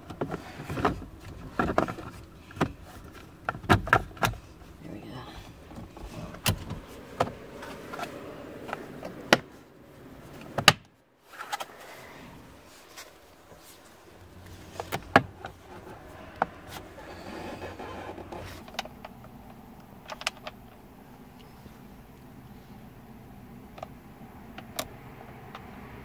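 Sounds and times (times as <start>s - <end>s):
light rustling: 11.2s - 19.6s.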